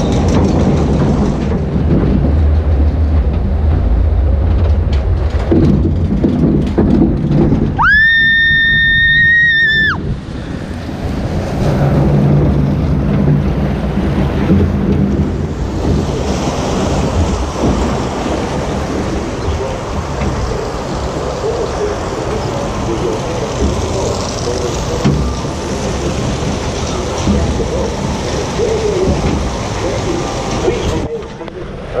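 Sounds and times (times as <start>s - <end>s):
boat rumbling down track: 0.0s - 32.0s
water splashing: 7.8s - 31.2s.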